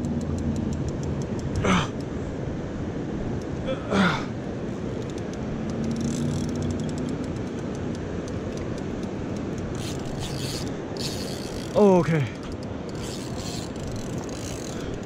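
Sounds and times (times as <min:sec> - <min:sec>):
river rushing: 0:01.5 - 0:15.0
wind noise: 0:04.5 - 0:15.0
spinning reel ticking: 0:05.0 - 0:15.0.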